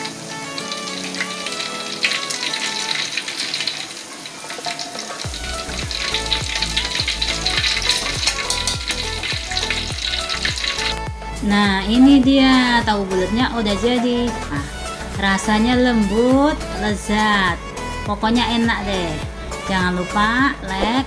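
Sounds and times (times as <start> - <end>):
oil sizzling in a wok: 0.0 - 12.0
background music: 0.0 - 21.0
deep bass beat: 5.3 - 13.8, 14.5 - 21.0.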